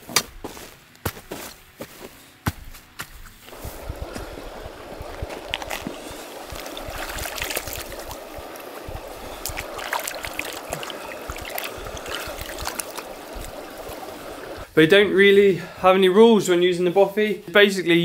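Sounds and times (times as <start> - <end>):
small water splashes: 3.5 - 14.7
stream trickling over rocks: 3.5 - 14.7.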